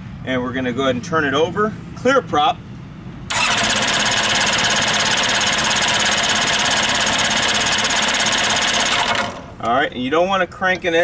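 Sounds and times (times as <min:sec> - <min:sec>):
engine cranking without firing: 0:03.3 - 0:09.8.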